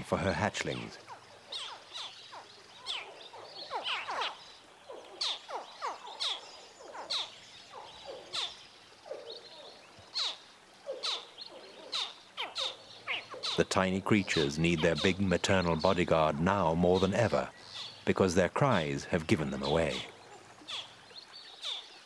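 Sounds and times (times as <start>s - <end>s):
baby crocodiles chirping: 1.0s - 15.9s, 19.6s - 21.0s.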